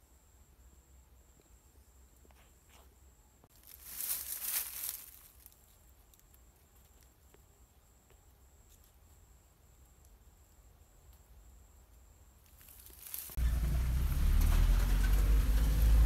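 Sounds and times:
rustle of dry grass and leaves: 3.5 - 7.5, 12.4 - 16.0.

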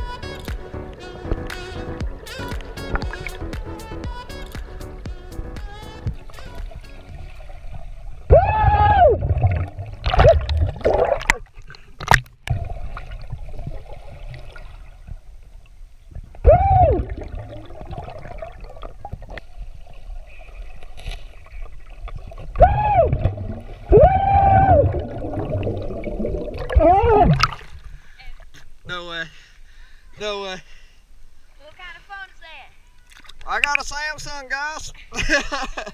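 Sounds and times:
low water rumble: 0.0 - 28.9
muffled underwater cries: 8.3 - 9.6, 16.4 - 18.4, 22.6 - 25.8, 26.5 - 27.4.

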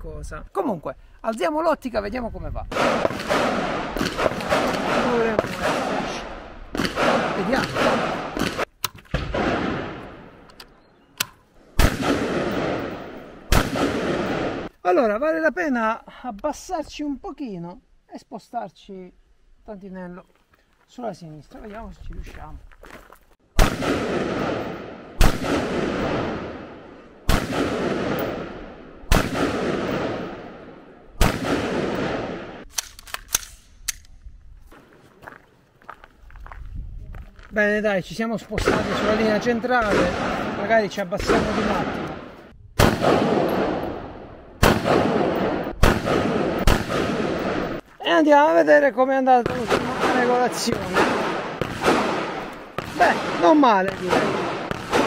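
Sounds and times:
rifle shots echoing: 2.7 - 10.5, 11.8 - 14.7, 23.6 - 33.6, 38.6 - 47.8, 49.4 - 55.0.

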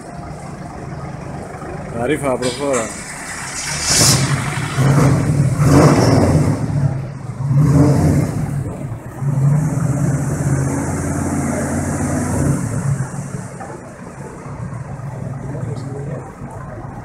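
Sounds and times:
car engine revving hard: 2.9 - 13.5.

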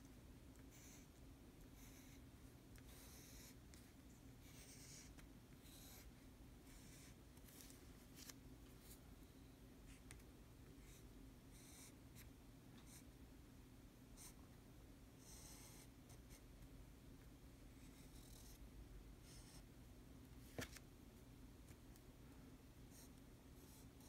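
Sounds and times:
low steady hum: 0.0 - 24.0
pen nib scratching paper: 0.7 - 1.1, 1.8 - 2.2, 2.8 - 6.1, 22.9 - 24.0.

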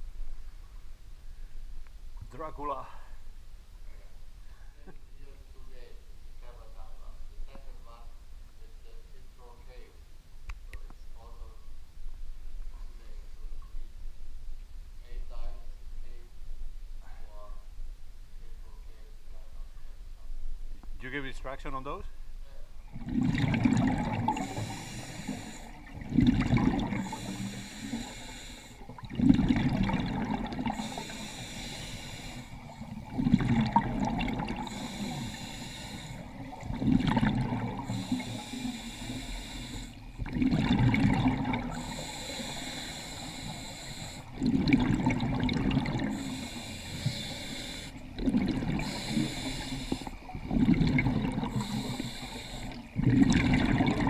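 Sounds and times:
exhaled bubbles rushing: 22.8 - 54.0
diver breathing through regulator: 23.0 - 54.0.

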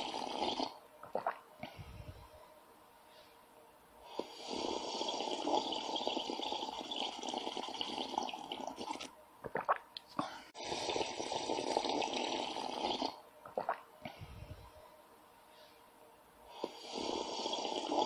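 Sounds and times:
person slurping liquid: 0.0 - 1.4, 4.2 - 9.8, 10.6 - 13.8, 16.6 - 18.0.

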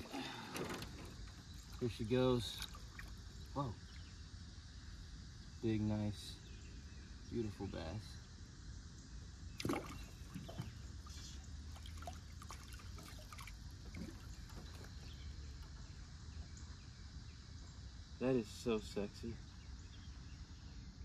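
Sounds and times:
water trickling and lapping: 0.0 - 5.3, 9.5 - 16.7.

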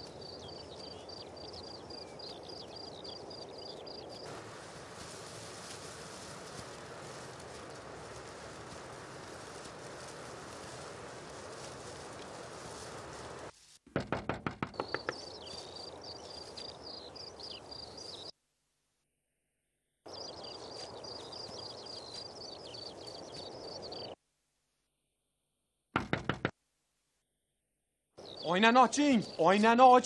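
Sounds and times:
high chirping of birds or insects: 0.0 - 4.3, 14.6 - 18.3, 20.0 - 24.2, 28.2 - 30.0
fist knocking on car window: 13.9 - 15.2, 26.0 - 26.6.

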